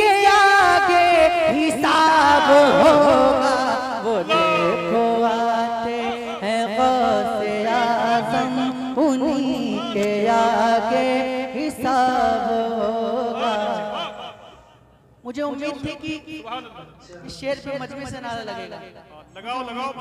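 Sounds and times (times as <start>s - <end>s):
man singing devotional poem: 0.0s - 14.4s.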